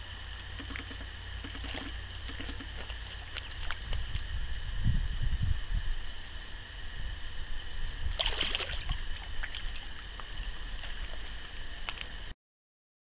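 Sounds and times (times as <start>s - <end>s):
steady high whine: 0.0s - 12.4s
steady low rumble: 0.0s - 12.4s
fish splashing in water: 0.2s - 4.4s, 8.0s - 12.3s.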